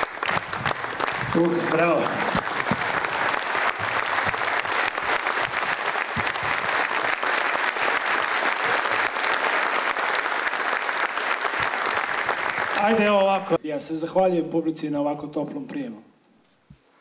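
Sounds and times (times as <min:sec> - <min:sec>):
audience applauding: 0:00.0 - 0:13.6.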